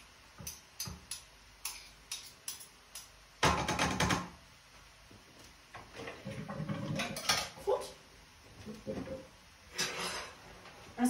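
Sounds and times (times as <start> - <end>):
utensils knocking on counter: 3.4 - 4.4.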